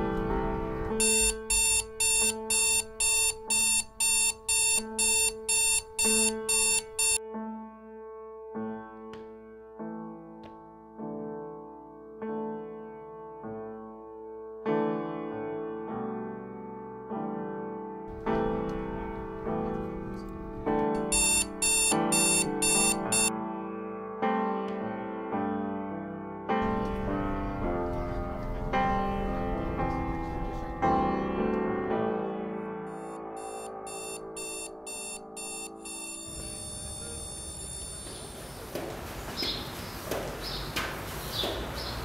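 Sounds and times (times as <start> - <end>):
soft piano chords: 0.0 - 3.6, 4.8 - 38.1
alarm clock beeping: 1.0 - 7.2, 21.1 - 23.3, 32.9 - 38.3.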